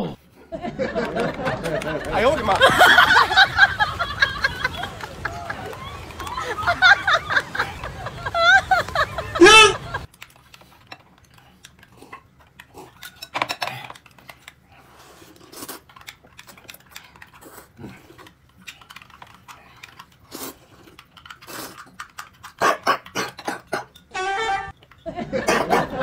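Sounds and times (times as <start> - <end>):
chewing and mouth noises: 10.1 - 24.1.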